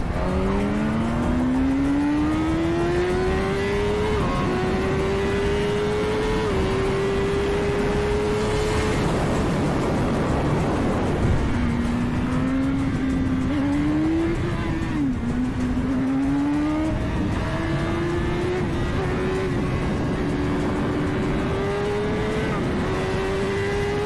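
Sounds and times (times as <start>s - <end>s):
motorcycle engine accelerating: 0.0s - 24.0s
wind rush: 0.0s - 24.0s.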